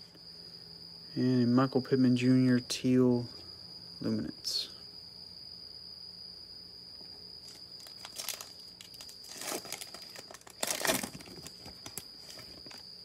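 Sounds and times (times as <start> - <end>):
cricket trilling: 0.0 - 13.0
foil pack tearing and crinkling: 7.5 - 12.8.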